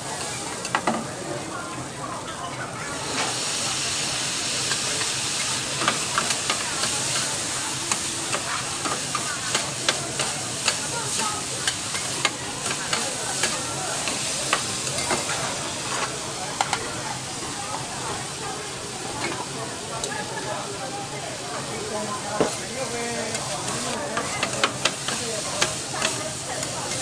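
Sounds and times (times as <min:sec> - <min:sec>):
noodles sizzling on griddle: 0:00.0 - 0:27.0
metal spatulas clacking and scraping: 0:23.3 - 0:27.0.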